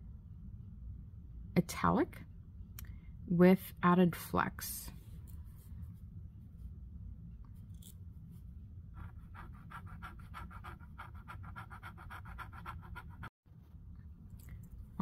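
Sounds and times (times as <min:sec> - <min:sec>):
pen nib scratching on paper: 0:09.0 - 0:13.3.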